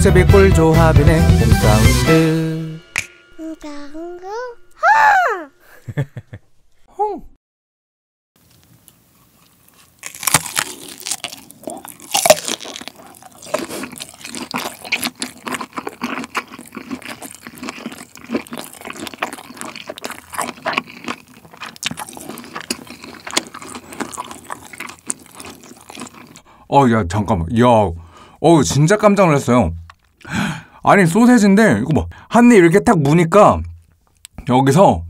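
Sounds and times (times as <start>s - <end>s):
wet chewing: 9.3s - 26.5s
biting into sausage: 9.4s - 26.4s.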